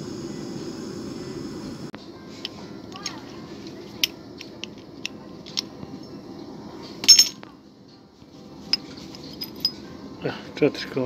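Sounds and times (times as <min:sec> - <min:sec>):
ringing metal clinks: 0:07.0 - 0:07.4, 0:08.7 - 0:09.8
metal mould clicks and clinks: 0:07.0 - 0:07.5.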